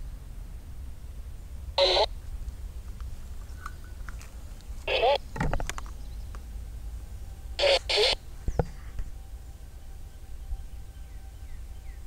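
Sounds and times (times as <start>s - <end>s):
low steady rumble: 0.0s - 12.0s
bird harsh calls: 4.8s - 6.3s, 7.6s - 8.6s.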